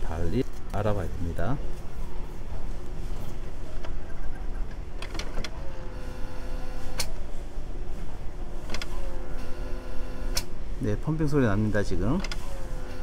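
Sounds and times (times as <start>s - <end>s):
printer pump motor whine: 5.4s - 7.0s, 8.8s - 10.5s, 12.3s - 13.0s.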